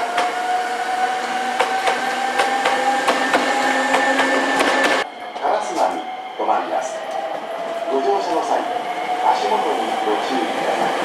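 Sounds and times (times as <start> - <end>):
train wheels clacking: 1.5 - 6.0.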